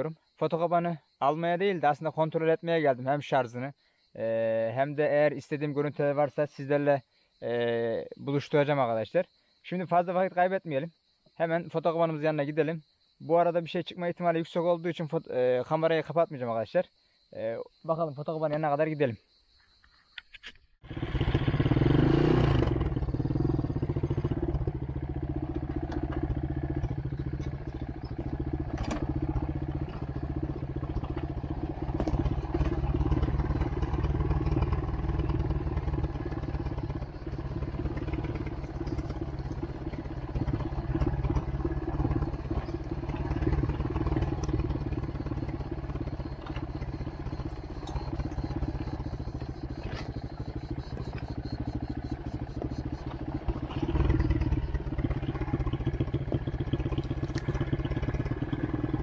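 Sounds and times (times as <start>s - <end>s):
atv engine running: 20.8s - 59.0s.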